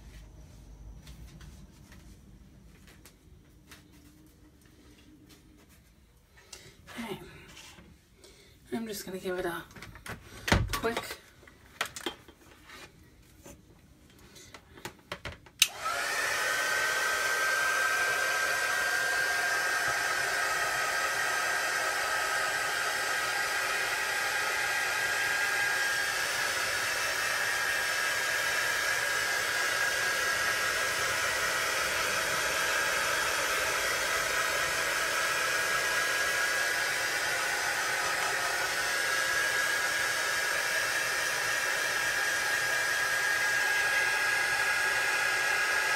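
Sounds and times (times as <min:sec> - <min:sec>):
hair dryer running: 0:15.6 - 0:45.9.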